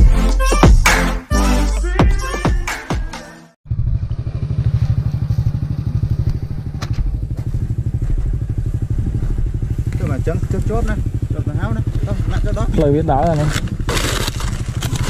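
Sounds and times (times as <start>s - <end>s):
motorcycle engine idling: 3.6s - 15.0s.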